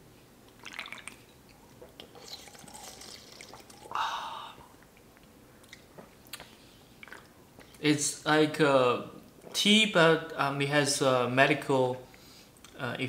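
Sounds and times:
sipping and swallowing: 0.6 - 7.8.

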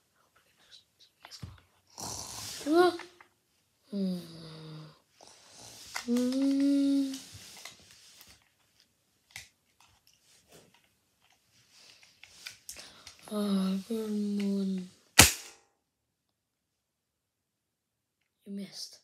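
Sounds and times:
toys clicking and knocking: 5.9 - 7.7.

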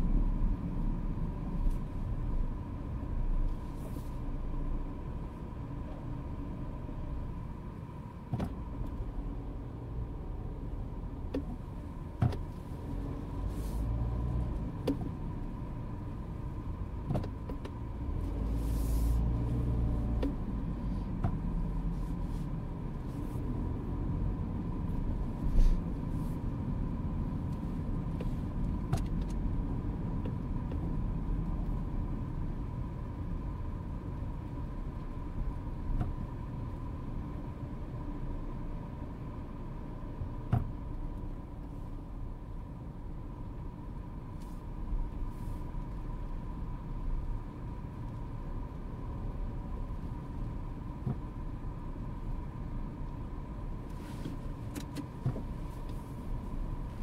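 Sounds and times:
car engine and road noise: 0.0 - 57.0.

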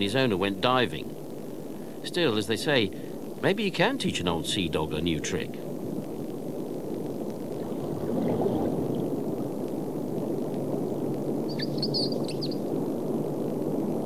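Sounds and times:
underwater rushing gurgling water: 7.2 - 11.4.

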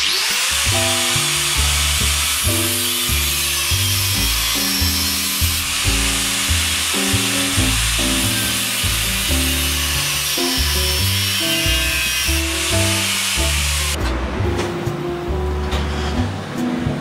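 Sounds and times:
background music with bass line: 0.6 - 17.0.

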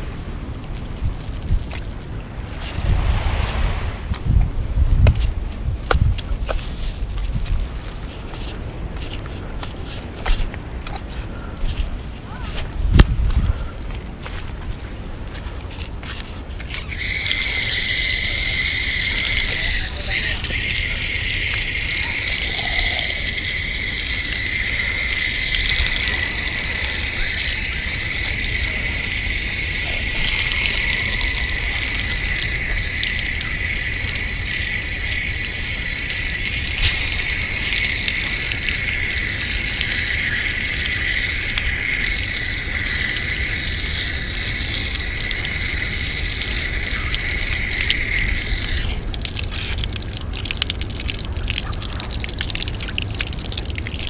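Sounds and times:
water splashing from tap: 16.6 - 54.0
shrill insect chorus: 16.7 - 49.0.

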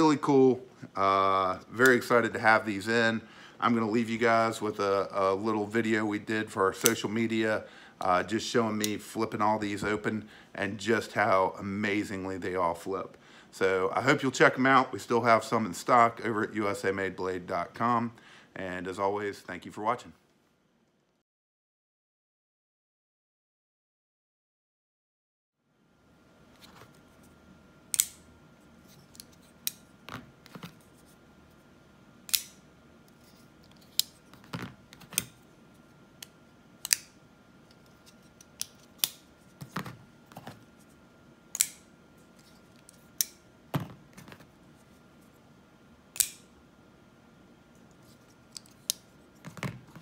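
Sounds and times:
folding knife blades snapping open: 27.9 - 28.2, 32.3 - 32.6, 36.8 - 37.1, 41.5 - 41.8, 46.2 - 46.4.

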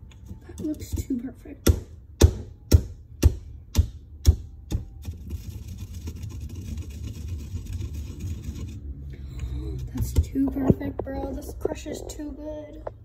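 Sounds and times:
stone pestle knocking in mortar: 0.9 - 5.0
pestle scraping candy: 4.7 - 8.8.

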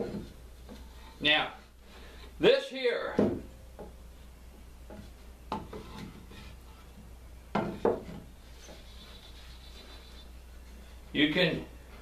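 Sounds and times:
wooden knocks and scrapes: 0.0 - 1.3, 3.2 - 11.1.

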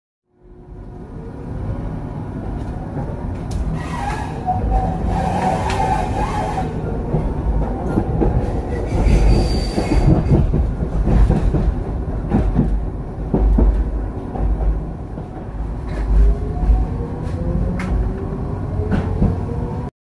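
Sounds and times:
tram wheels rumbling on rail: 0.4 - 19.9
high wheel squeal: 3.8 - 6.8, 8.8 - 10.2.

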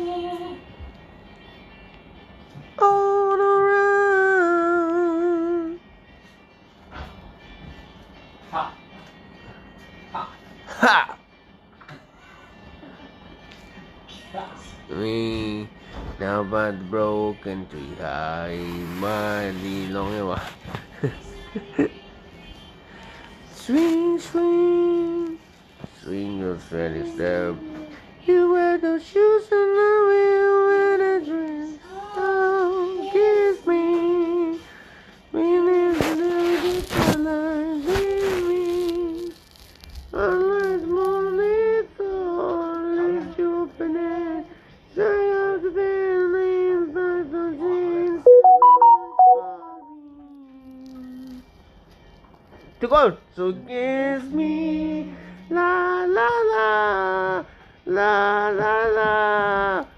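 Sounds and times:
person singing a cappella: 0.0 - 0.8, 2.6 - 5.9, 14.1 - 39.4, 40.1 - 51.5, 53.6 - 59.9
man singing unaccompanied: 2.8 - 5.9.

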